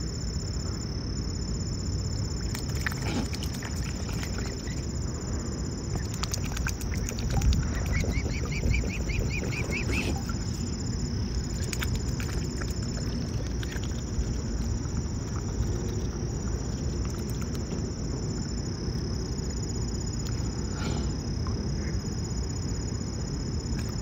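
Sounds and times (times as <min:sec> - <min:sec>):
steady low rumble: 0:00.0 - 0:24.0
bills dabbling in water: 0:02.2 - 0:05.0, 0:05.8 - 0:18.0.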